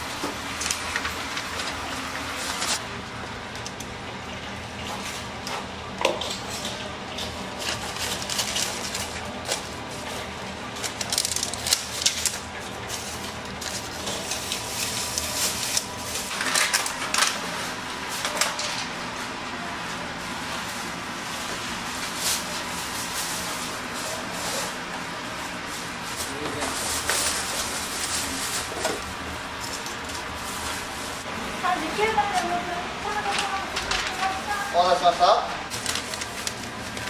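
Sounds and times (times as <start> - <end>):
steady kitchen hum: 0.0 - 37.0
plastic takeout boxes clicking: 35.7 - 37.0.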